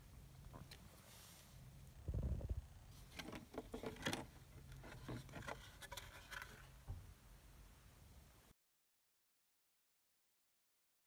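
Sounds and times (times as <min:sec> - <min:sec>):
plastic case clicks and scrapes: 0:03.1 - 0:06.7.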